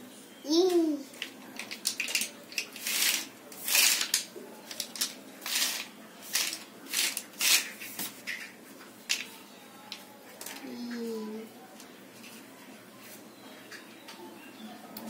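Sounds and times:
plastic letters rustling and clattering: 1.1 - 9.3.

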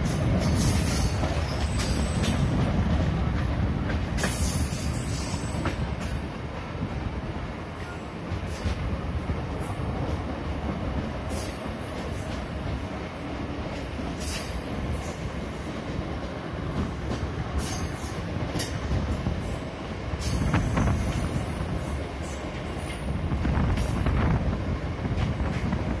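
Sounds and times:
rail clicks and clatter: 0.0 - 26.0
train wheels rumbling on track: 0.0 - 26.0.

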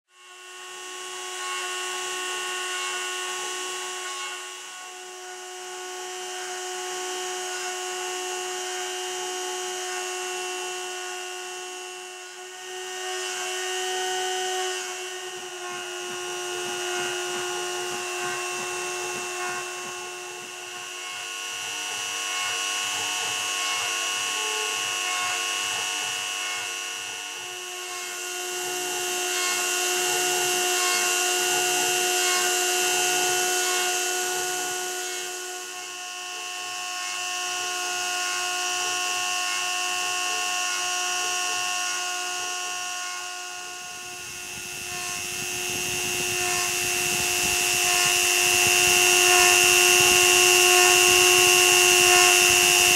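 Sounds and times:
rotary tool engraving wood: 0.1 - 52.9.

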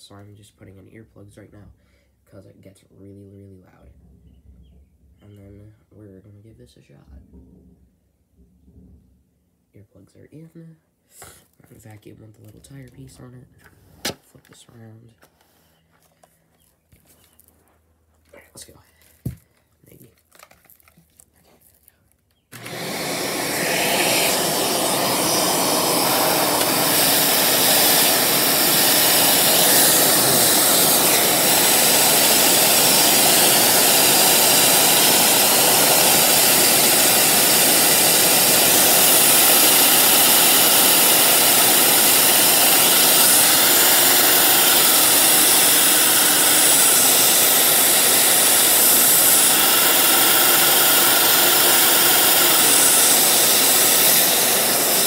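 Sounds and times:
vacuum cleaner rushing with a whine: 22.5 - 55.0.

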